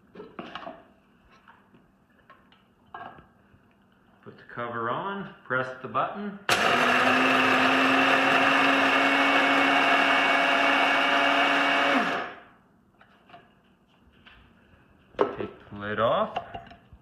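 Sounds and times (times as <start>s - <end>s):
coffee grinder motor: 6.5s - 12.4s.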